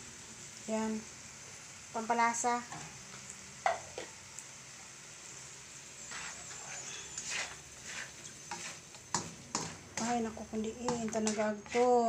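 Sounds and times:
spatula scraping a wok: 6.0s - 12.0s.

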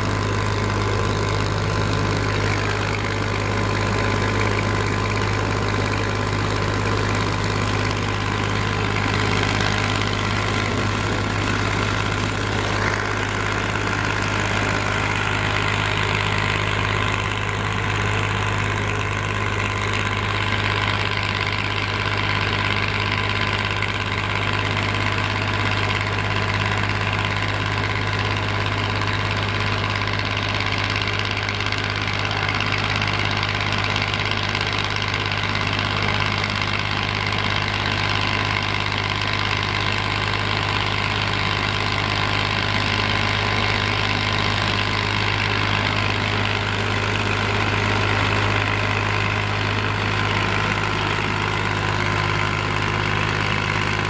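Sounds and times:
excavator and screener droning: 0.0s - 54.0s.

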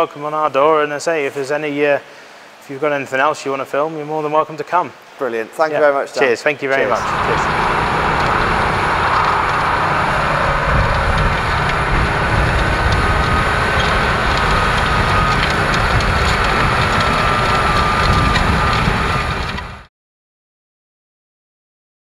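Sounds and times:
thin whine: 6.7s - 19.9s
tractor engine running under load: 6.8s - 19.9s.

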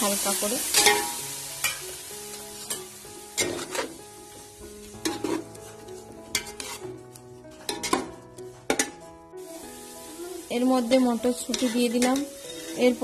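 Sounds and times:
food sizzling in a pot: 0.0s - 13.0s
metal spatula scraping a pot: 3.4s - 4.0s, 5.0s - 8.9s, 11.4s - 13.0s.

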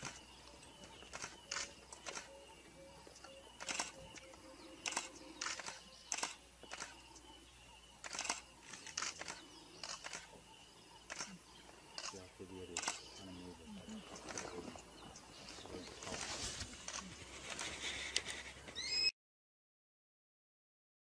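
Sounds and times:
faint sharp clicks: 0.0s - 2.3s, 3.1s - 7.1s, 8.0s - 10.4s, 11.0s - 13.2s
outdoor background noise: 0.0s - 19.1s.

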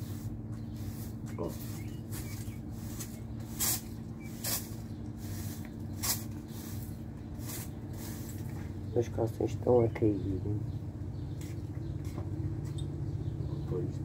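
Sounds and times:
broom sweeping a patio: 0.0s - 9.0s, 11.3s - 12.3s
steady low hum: 0.0s - 14.0s.

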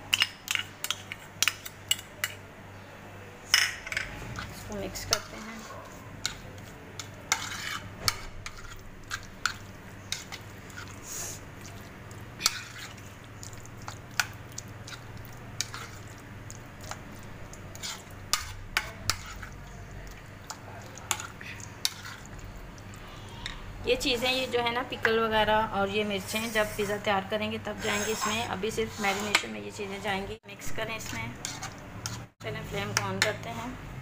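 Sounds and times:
soft wet scraping: 4.1s - 24.6s, 27.7s - 30.2s, 31.1s - 32.4s.

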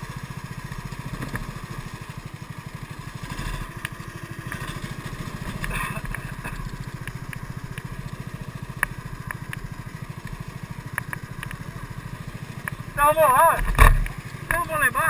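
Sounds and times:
kart engine throbbing: 0.0s - 15.0s
sharp clicks and rattles: 3.2s - 11.8s, 12.5s - 14.8s.

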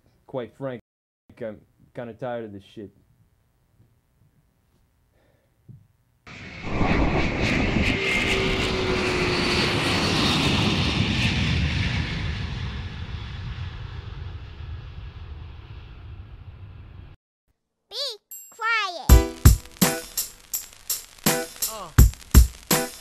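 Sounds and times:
rushing rumbling whoosh: 6.3s - 17.1s
crackles: 19.2s - 23.0s.

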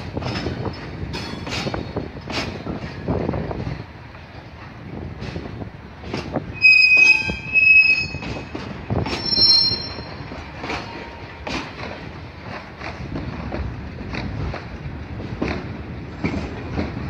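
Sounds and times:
train wheels squealing: 6.5s - 11.0s.

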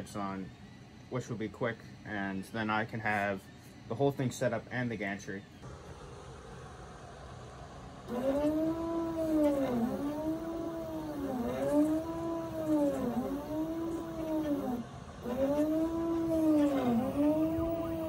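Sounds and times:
stepper motors whining: 8.1s - 18.0s.

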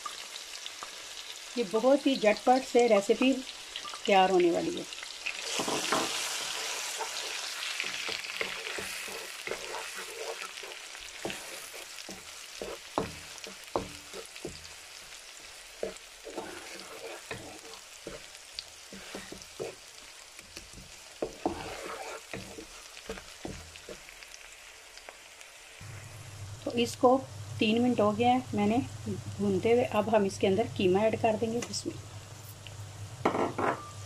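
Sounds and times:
onions sizzling in hot oil: 0.0s - 34.0s
wooden spatula scraping a pan: 5.4s - 14.7s, 15.8s - 20.0s, 20.6s - 24.0s.

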